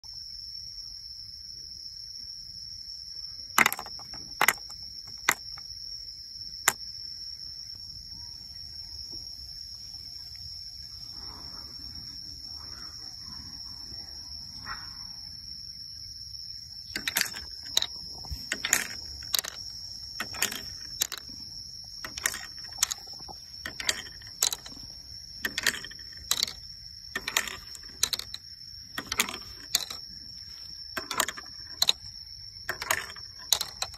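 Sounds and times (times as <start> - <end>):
high insect drone: 0.1 - 33.9
bamboo pieces knocking together: 3.6 - 5.6, 17.0 - 21.4, 22.0 - 33.9.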